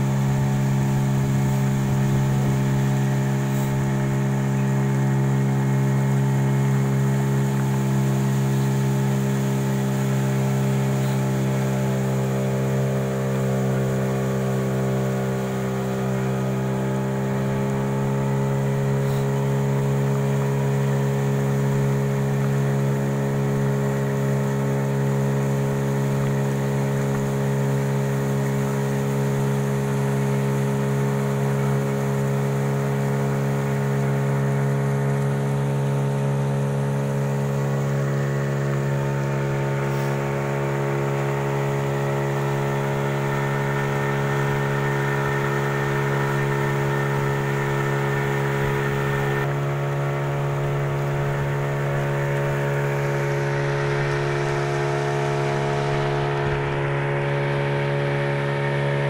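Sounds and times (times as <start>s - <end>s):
outboard motor running: 0.0s - 59.0s.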